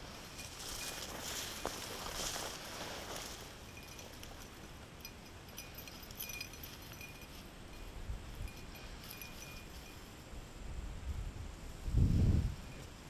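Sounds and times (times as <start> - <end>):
handling noise in dry grass: 0.0 - 10.3
faint metallic jingling: 0.0 - 10.4
wind rumble: 0.0 - 13.0.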